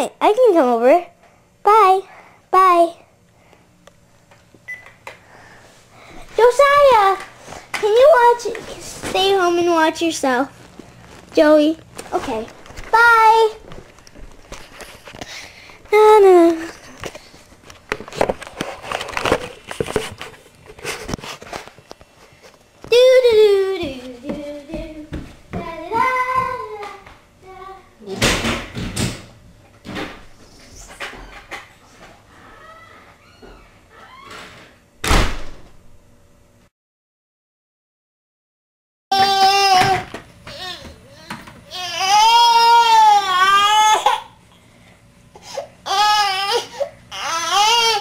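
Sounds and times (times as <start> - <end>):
infant crying: 39.2 - 44.3, 45.8 - 48.0.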